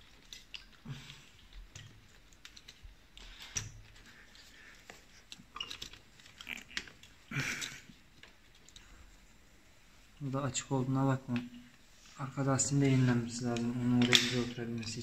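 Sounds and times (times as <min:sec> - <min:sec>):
small clicks and soft knocks: 0:00.0 - 0:09.3.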